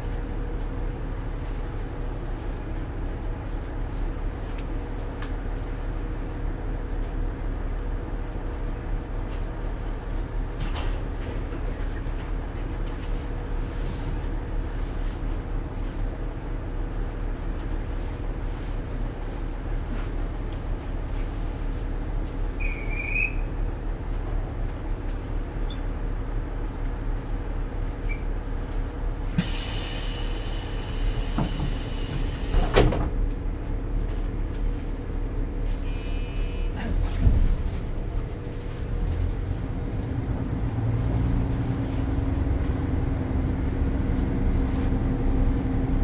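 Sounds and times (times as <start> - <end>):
compressed air hissing: 29.4 - 32.5
sliding doors knocking shut: 32.5 - 33.2.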